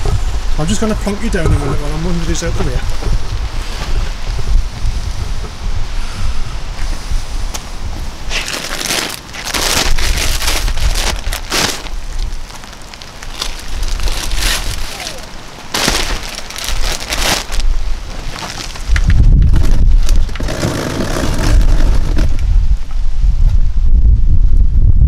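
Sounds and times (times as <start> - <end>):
wind buffeting microphone: 0.0 - 25.0
plastic bags crinkling and scraping: 8.3 - 22.4.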